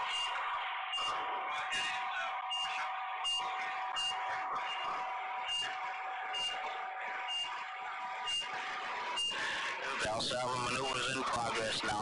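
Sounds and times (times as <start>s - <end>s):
heart monitor beeping: 0.0s - 1.2s, 2.5s - 8.5s, 9.1s - 9.5s
electrical hum: 0.0s - 12.0s.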